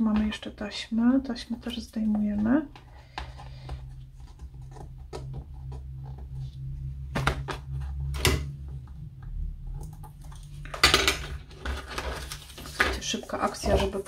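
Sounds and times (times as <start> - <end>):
low steady hum: 0.0 - 14.0
paper and tape crinkling: 11.4 - 14.0.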